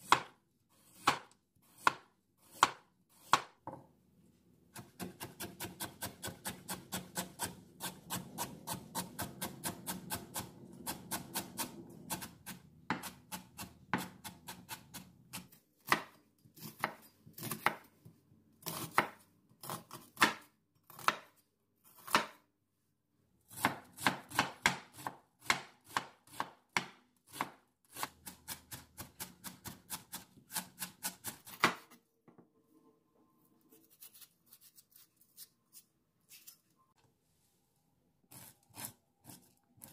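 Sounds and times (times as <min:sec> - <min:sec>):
knife chopping on wooden board: 0:00.0 - 0:03.8, 0:10.9 - 0:17.9, 0:23.5 - 0:31.9.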